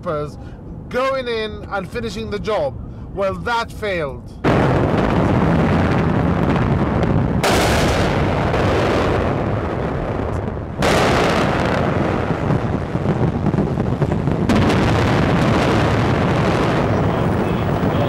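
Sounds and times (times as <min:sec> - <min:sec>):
explosion blasts: 0:04.4 - 0:18.0
heavy rumbling of bombardment: 0:04.4 - 0:18.0.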